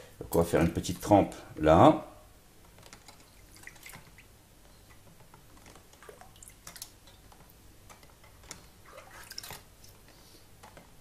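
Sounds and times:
liquid dripping and splashing: 3.0s - 4.3s, 5.6s - 10.0s.

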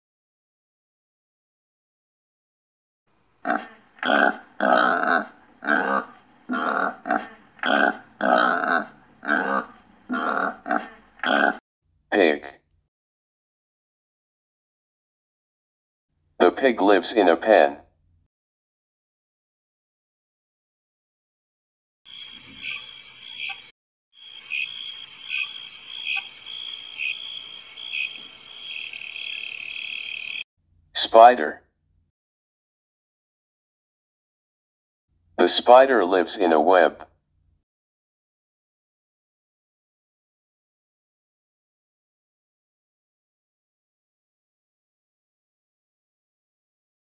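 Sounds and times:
pig grunting: 3.4s - 11.6s
insect chirring trill: 22.1s - 30.4s.

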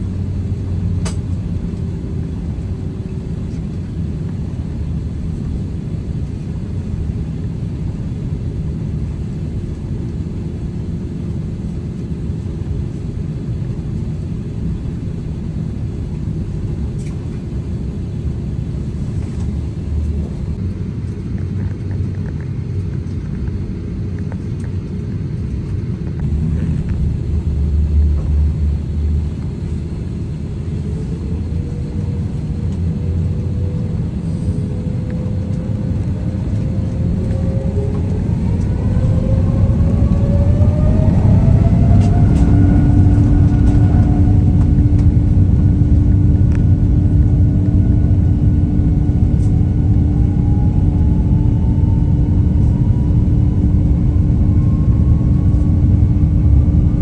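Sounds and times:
jet engines rumbling: 0.0s - 57.0s
engines whining: 13.8s - 57.0s.

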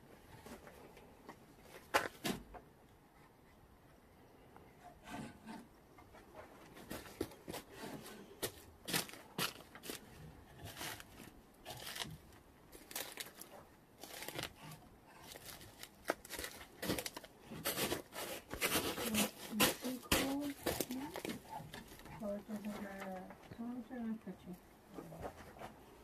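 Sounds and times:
wooden sticks clacking and scraping: 5.0s - 23.6s.

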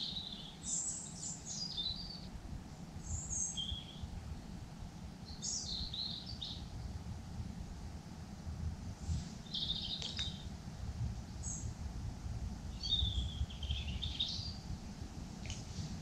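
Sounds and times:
small birds chirping: 0.0s - 4.2s, 5.2s - 7.0s, 9.4s - 10.6s, 11.3s - 11.8s, 12.7s - 14.8s
low steady rumble: 0.0s - 16.0s.

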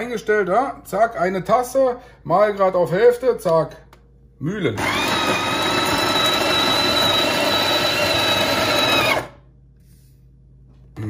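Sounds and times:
coffee grinder motor whine: 4.8s - 9.4s.

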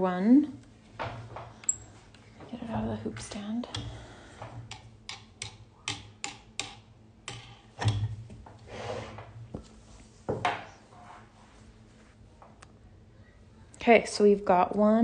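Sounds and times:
soft rustle: 9.6s - 12.4s.

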